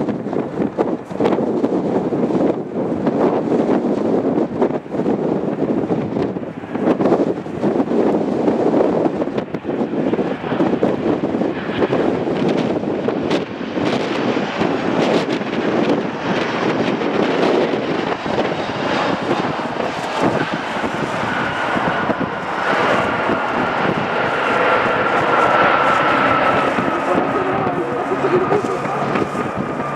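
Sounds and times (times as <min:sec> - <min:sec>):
jet engines rushing: 0:00.0 - 0:29.9
high whine: 0:14.6 - 0:29.9.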